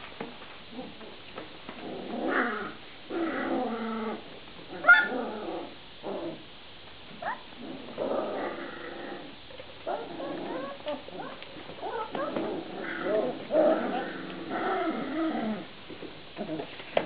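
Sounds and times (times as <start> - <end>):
puppies growling and yipping: 1.7 - 6.5, 7.1 - 15.8
puppy yelp: 4.8 - 5.1, 7.2 - 7.5.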